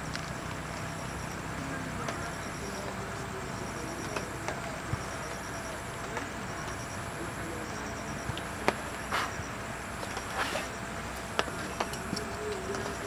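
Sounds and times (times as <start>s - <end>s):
sharp ticks: 0.0s - 10.3s
faint distant high chirp: 0.0s - 10.8s
rushing outdoor noise: 0.0s - 13.0s.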